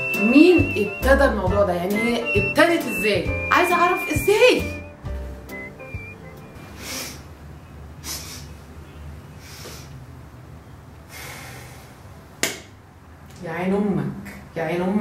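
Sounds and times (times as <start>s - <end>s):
woman sniffing: 6.8s - 7.3s, 8.0s - 8.6s, 9.4s - 10.0s, 11.1s - 12.0s.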